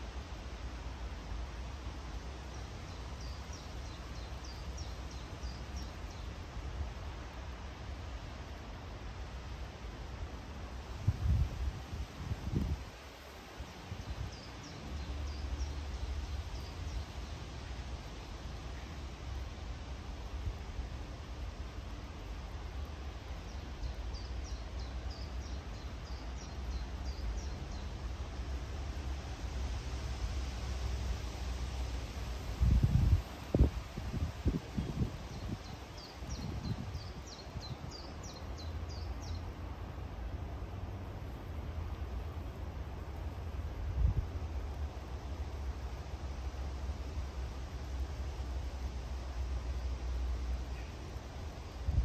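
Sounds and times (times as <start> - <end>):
low wind rumble: 0.0 - 52.0
wind rumbling on microphone: 10.2 - 15.7, 32.0 - 39.4, 43.6 - 46.0, 51.5 - 52.0.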